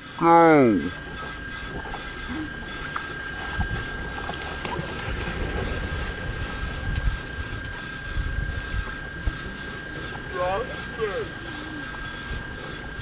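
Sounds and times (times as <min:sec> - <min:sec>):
low rumble of wind and water: 0:00.7 - 0:13.0
children splashing into water: 0:01.7 - 0:10.3.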